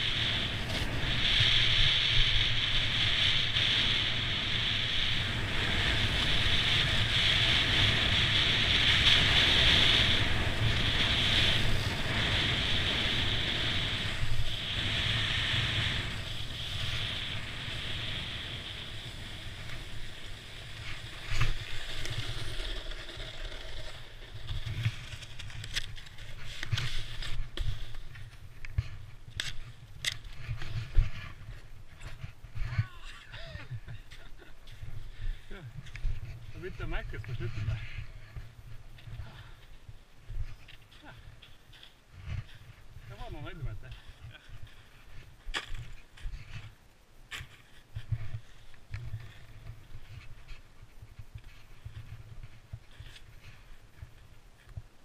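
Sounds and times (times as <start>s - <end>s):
wind on microphone: 0.0s - 22.5s
snowboard hissing on snow: 0.0s - 25.1s.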